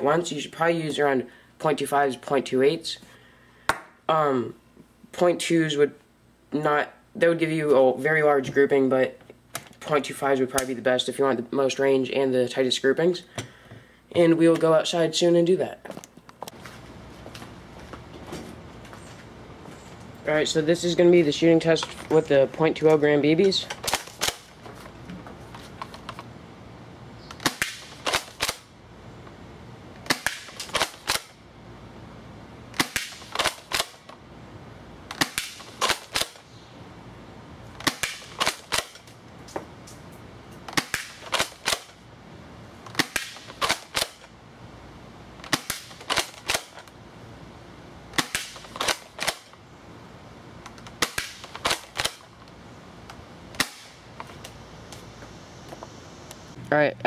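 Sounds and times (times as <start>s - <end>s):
airsoft shotgun shots: 27.4s - 28.7s, 30.0s - 31.4s, 32.8s - 34.0s, 35.1s - 36.4s, 37.8s - 39.1s, 40.7s - 42.0s, 42.9s - 44.2s, 45.4s - 46.8s, 48.1s - 49.5s, 51.0s - 52.2s, 53.6s - 54.0s.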